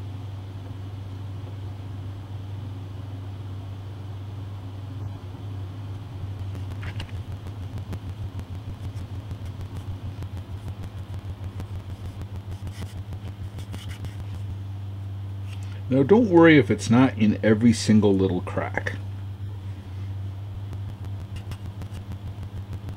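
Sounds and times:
low electrical hum: 0.0s - 22.9s
paintbrush scrubbing plastic: 6.4s - 14.6s, 21.2s - 22.2s.

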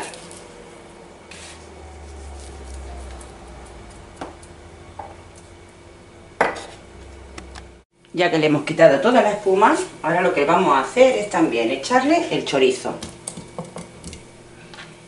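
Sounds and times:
low steady rumble: 0.3s - 7.8s.

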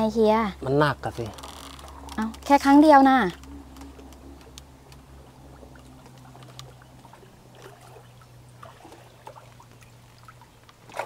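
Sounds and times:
steady low hum: 0.0s - 11.0s
water lapping and trickling: 0.0s - 11.0s
small drips and taps: 3.4s - 11.0s.

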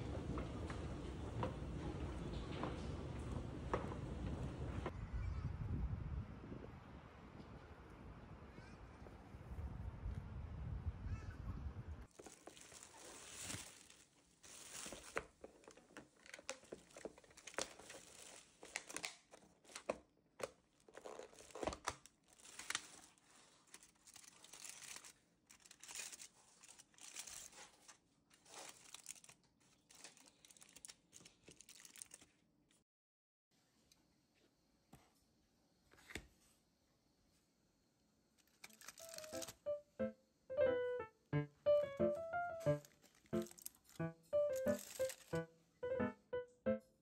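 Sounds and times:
aluminium foil crinkling: 12.1s - 20.0s, 20.7s - 32.4s, 38.4s - 39.6s, 42.7s - 45.5s
plastic bag crinkling: 12.1s - 20.0s, 20.7s - 32.4s, 38.4s - 39.6s, 42.6s - 45.5s.

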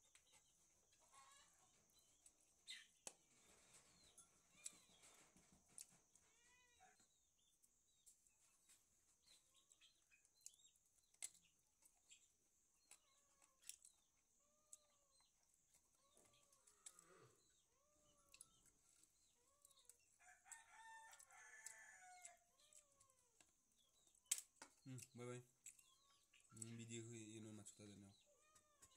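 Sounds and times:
faint animal calls: 6.1s - 7.1s, 12.8s - 20.0s, 21.4s - 23.4s, 25.0s - 28.9s.

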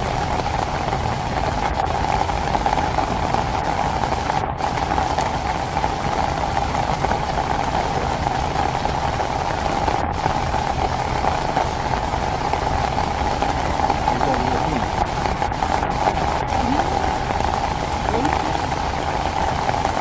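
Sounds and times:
heavy rain pouring: 0.0s - 20.0s
mid-pitched hum: 7.0s - 20.0s.

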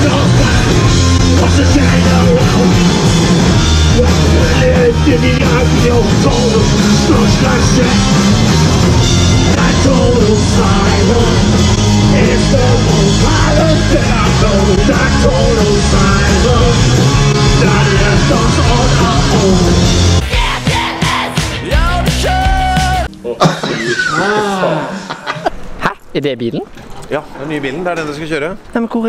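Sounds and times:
person singing: 0.0s - 8.7s, 9.4s - 25.0s
rock band playing live: 0.0s - 23.1s.

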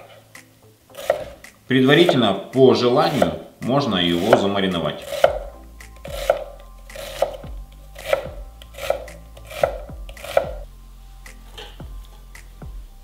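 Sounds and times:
knife chopping on wooden board: 1.0s - 2.3s, 3.1s - 3.4s, 4.1s - 10.6s.

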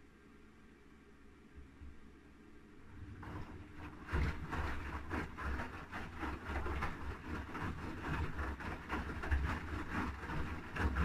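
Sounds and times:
washing machine drum tumbling laundry: 2.9s - 11.0s.

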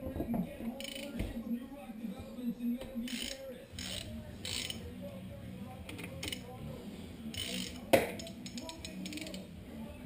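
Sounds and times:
socket ratchet clicking: 7.4s - 9.4s.

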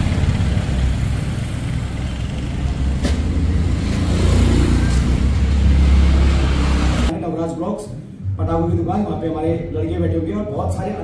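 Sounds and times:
motorcycle passing: 0.0s - 7.1s
vehicle engines rumbling: 0.0s - 7.2s.

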